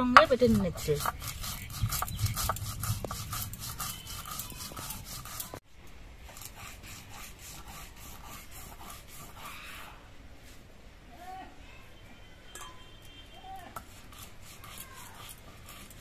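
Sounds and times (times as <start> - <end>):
stone roller grinding on stone slab: 0.0 - 5.6.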